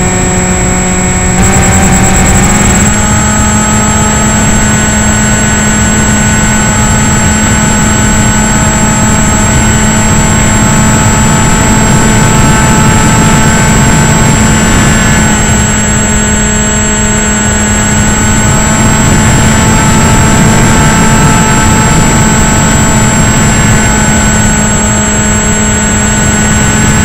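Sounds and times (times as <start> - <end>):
electric motor whine: 0.0 - 27.0
wind rushing on microphone: 0.0 - 27.0.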